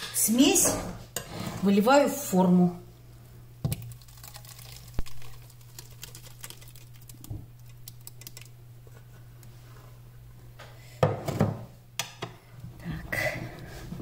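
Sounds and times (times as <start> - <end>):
low steady hum: 0.0 - 14.0
thick mixture pouring wet clicks: 3.6 - 8.6.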